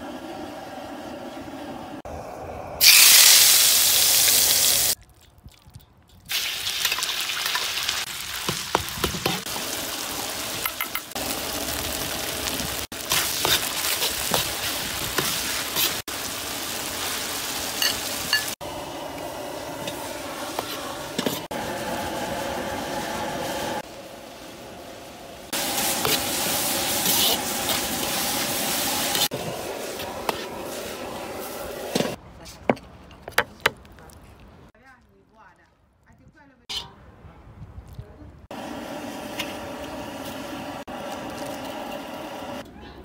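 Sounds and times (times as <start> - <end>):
food sizzling in a wok: 2.8 - 5.0, 6.3 - 32.2
metal spatula scraping wok: 36.7 - 37.0.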